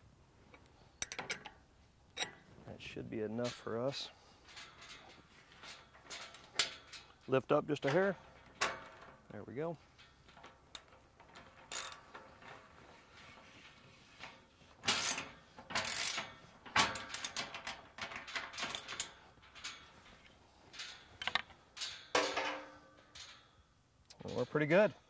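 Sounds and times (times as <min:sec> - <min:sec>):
metal hardware clicking and rattling: 0:00.5 - 0:02.5, 0:03.2 - 0:12.9, 0:14.2 - 0:24.9.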